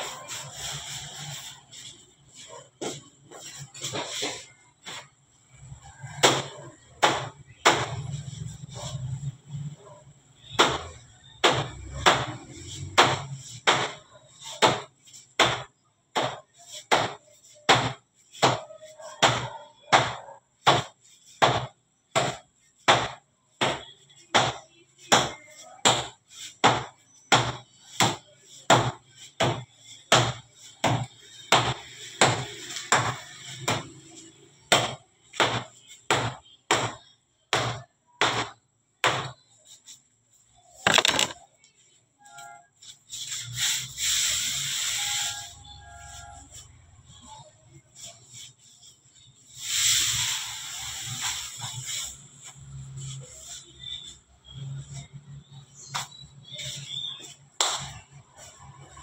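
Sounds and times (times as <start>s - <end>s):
scraper knocking on steel table: 40.8s - 41.4s.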